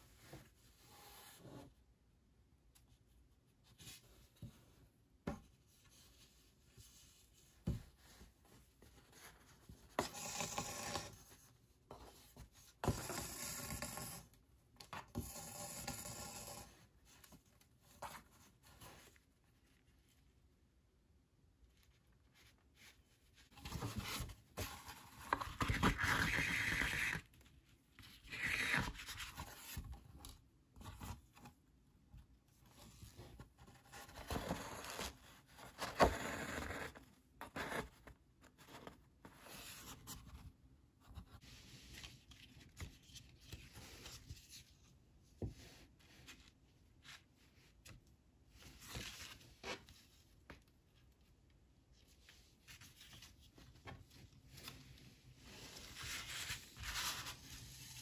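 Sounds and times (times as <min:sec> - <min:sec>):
paper rustling and sliding: 0:52.7 - 0:58.0.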